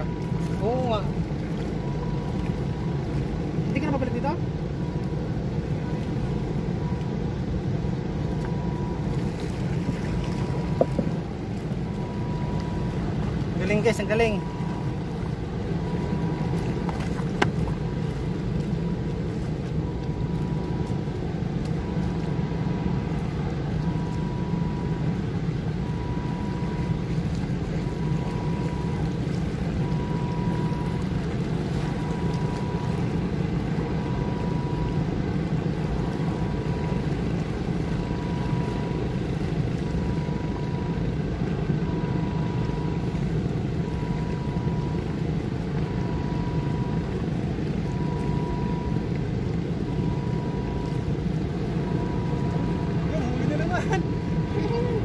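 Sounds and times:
low mechanical rumble: 0.0s - 55.0s
faint high tone: 51.9s - 55.0s.

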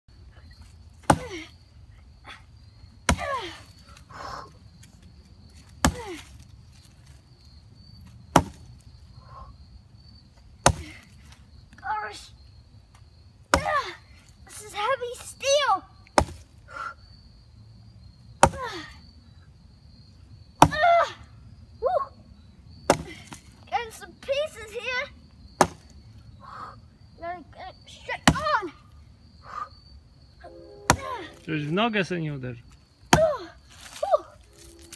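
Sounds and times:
axe chopping log: 1.0s - 1.4s, 8.3s - 8.6s, 10.6s - 11.0s, 13.5s - 13.9s, 16.2s - 16.4s, 18.4s - 18.7s, 20.6s - 20.9s, 22.9s - 23.4s, 25.6s - 25.9s, 28.2s - 28.5s, 33.1s - 33.4s.

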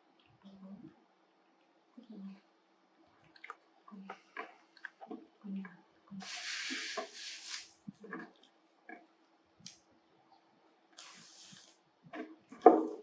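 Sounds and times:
rustling hiss: 6.1s - 8.0s, 11.0s - 11.8s.

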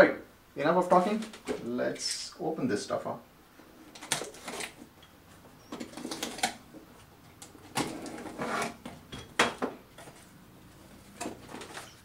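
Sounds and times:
cardboard rustling: 3.9s - 9.1s, 10.0s - 12.0s.

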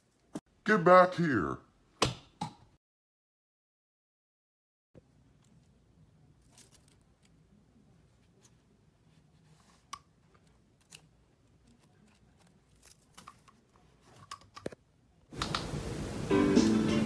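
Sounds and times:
loud music: 16.2s - 17.0s.

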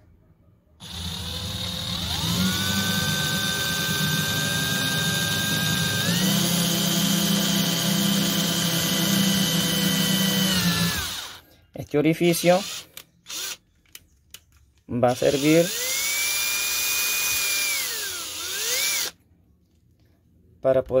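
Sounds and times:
cordless drill motor whine: 0.8s - 11.4s, 12.6s - 13.6s, 15.3s - 19.2s.

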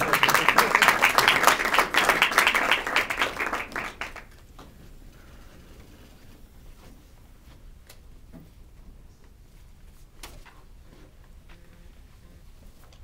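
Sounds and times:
audience applauding: 0.0s - 4.4s.

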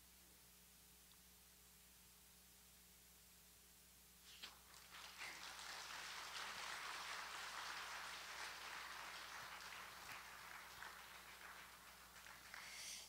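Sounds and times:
crowd applauding: 4.4s - 13.0s.

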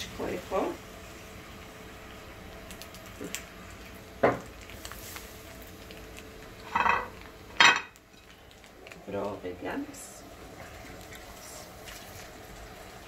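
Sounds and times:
dishes and utensils clattering: 6.7s - 8.0s.

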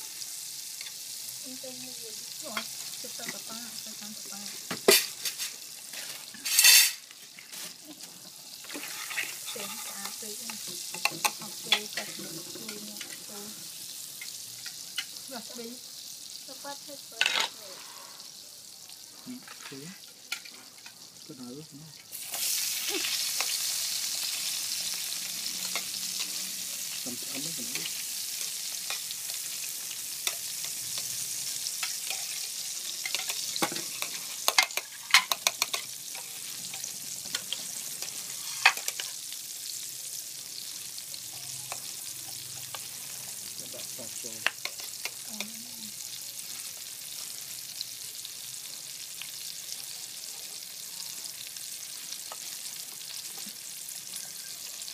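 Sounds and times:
onions sizzling in frying pan: 0.0s - 54.9s
chopsticks clicking against pan: 34.0s - 35.8s.

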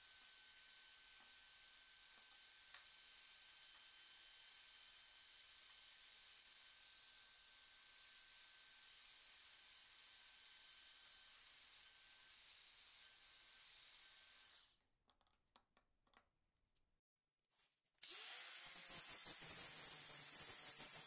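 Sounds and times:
heat gun blowing: 18.0s - 21.0s.

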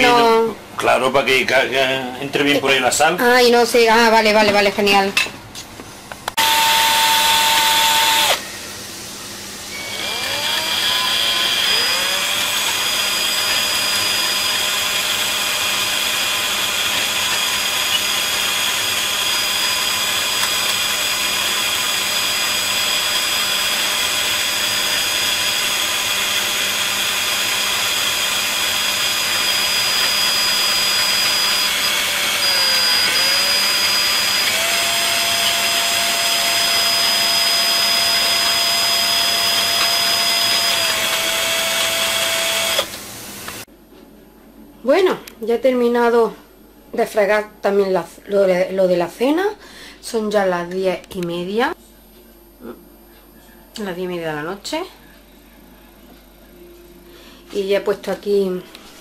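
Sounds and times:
rotary tool grinding whine: 6.4s - 8.4s, 9.7s - 43.6s.

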